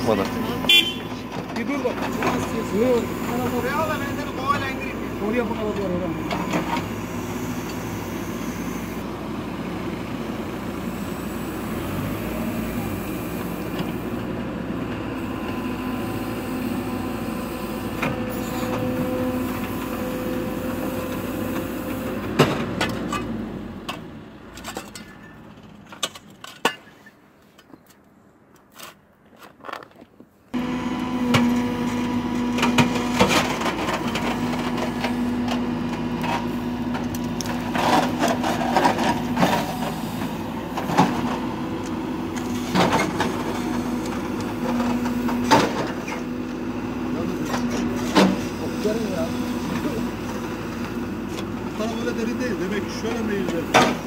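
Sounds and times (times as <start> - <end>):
diesel engine running: 0.0 - 26.0, 30.5 - 54.0
backhoe bucket digging: 31.1 - 46.3.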